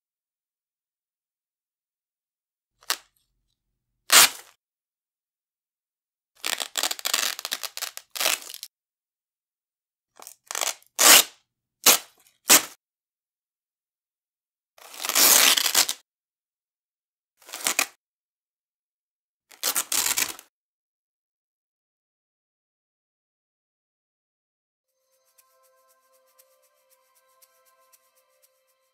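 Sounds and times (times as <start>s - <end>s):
velcro straps ripping: 4.1s - 4.5s, 6.4s - 8.7s, 10.2s - 12.8s, 14.8s - 16.0s, 17.4s - 18.0s, 19.5s - 20.4s.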